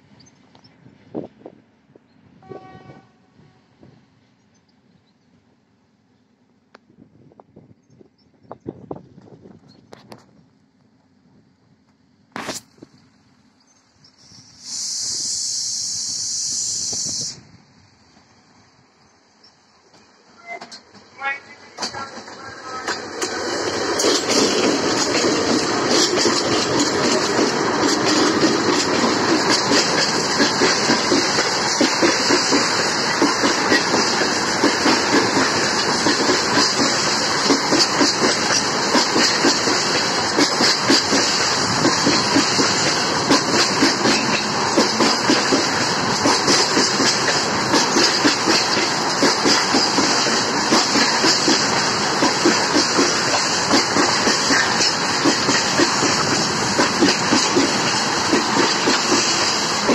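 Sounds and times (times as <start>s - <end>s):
freight train rumble: 0.0s - 59.9s
train wheels clattering: 21.8s - 59.9s.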